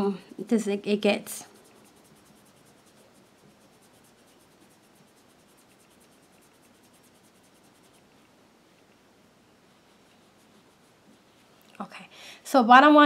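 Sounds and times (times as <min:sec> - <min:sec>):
sponge rubbing on a nail: 0:01.0 - 0:08.4, 0:09.8 - 0:11.6.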